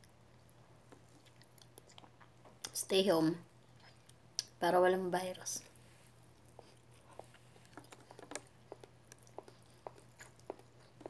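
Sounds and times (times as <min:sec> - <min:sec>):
person chewing food: 0:00.4 - 0:02.7, 0:06.2 - 0:11.0
mouth clicks and smacks: 0:07.2 - 0:11.0.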